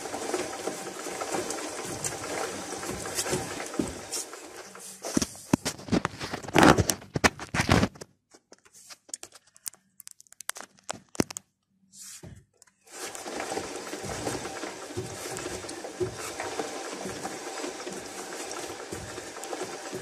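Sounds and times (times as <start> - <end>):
driveshaft joint scraping and clicking: 0.7 - 7.4.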